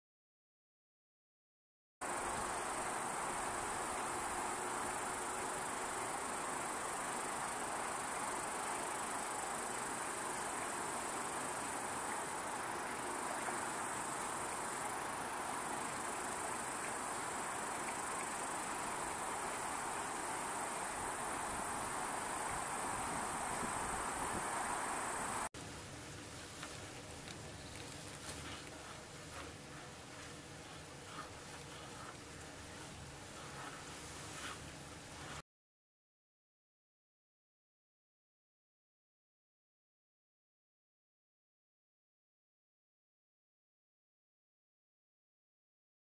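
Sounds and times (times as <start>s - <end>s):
insects trilling: 2.0s - 34.6s.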